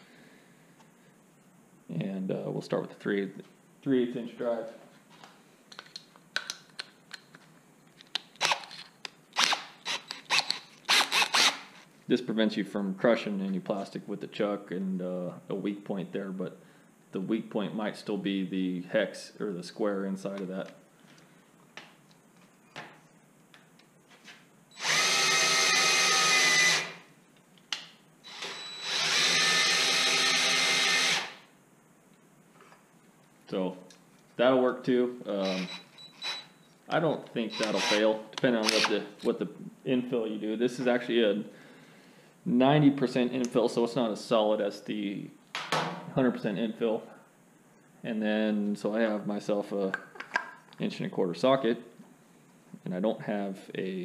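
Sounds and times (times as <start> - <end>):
drill chuck ratcheting: 9.4 - 11.8, 28.3 - 31.4.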